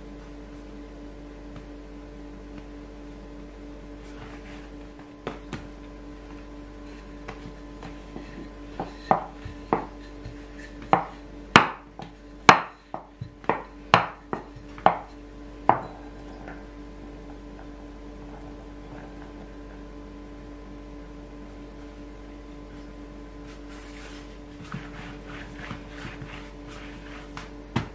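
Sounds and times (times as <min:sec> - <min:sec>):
faint hum: 0:00.0 - 0:27.9
rolling pin knocking on wooden board: 0:07.2 - 0:16.0.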